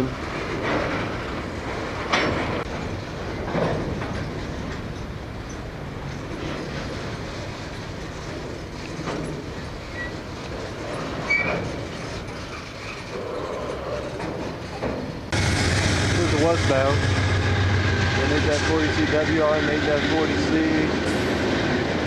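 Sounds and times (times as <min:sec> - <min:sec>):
railcar knocks: 0:00.0 - 0:12.6, 0:14.1 - 0:22.0
diesel locomotive engine: 0:00.0 - 0:22.0
steel wheels rumbling on rail: 0:00.0 - 0:22.0
high wheel squeals: 0:09.5 - 0:10.3, 0:11.2 - 0:14.8.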